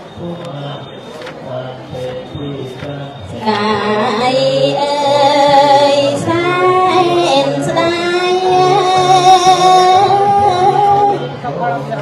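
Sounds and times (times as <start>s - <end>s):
woman chanting: 3.3s - 11.2s.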